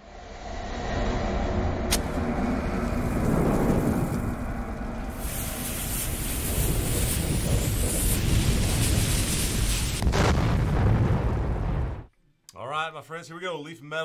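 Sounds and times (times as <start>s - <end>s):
low rumble: 0.0s - 12.1s
burning fuse hissing and crackling: 1.9s - 11.8s.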